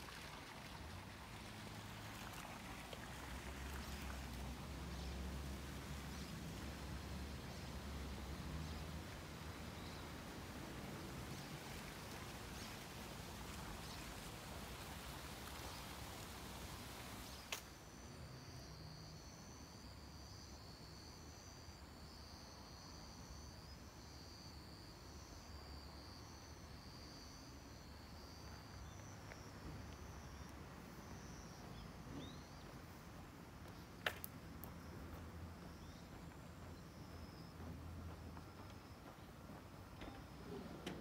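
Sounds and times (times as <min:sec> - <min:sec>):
faint steady hiss: 0:00.0 - 0:41.0
insects chirping high trills: 0:17.2 - 0:33.0, 0:34.6 - 0:40.6.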